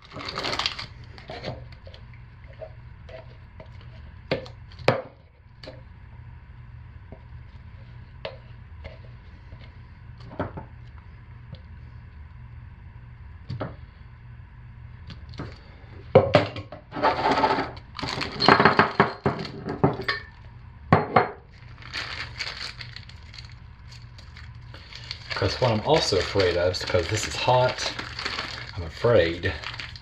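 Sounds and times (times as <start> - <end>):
plastic bag crinkling: 0.0 - 1.9, 17.8 - 19.1, 21.5 - 30.0.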